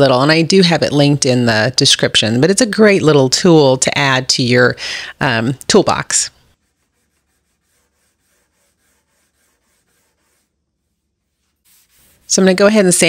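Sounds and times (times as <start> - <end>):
sandpaper sanding wood: 6.6 - 12.8.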